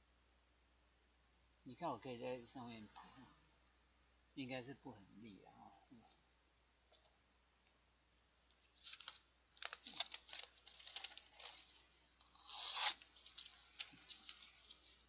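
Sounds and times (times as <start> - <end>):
knife blade tearing paper: 8.9 - 14.8.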